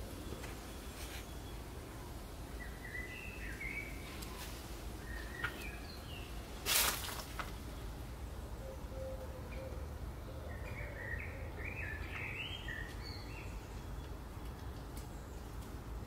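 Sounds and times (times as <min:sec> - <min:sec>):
small birds chirping: 0:00.0 - 0:16.0
steady background noise: 0:00.0 - 0:16.0.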